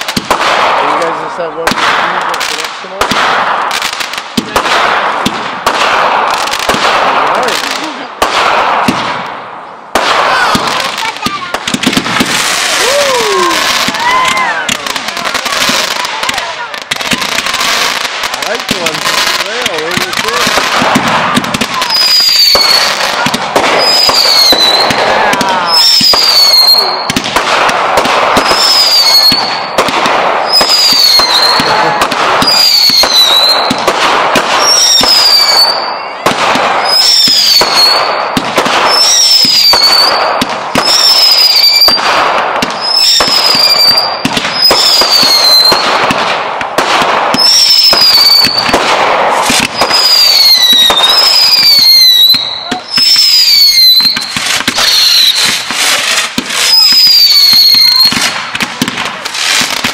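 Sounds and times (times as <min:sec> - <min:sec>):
fireworks bangs and crackling: 0:00.0 - 0:59.9.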